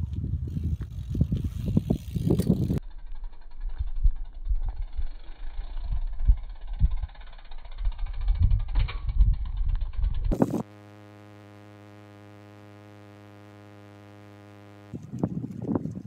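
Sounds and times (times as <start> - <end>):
wind buffeting microphone: 0.0 - 2.8, 15.0 - 16.0.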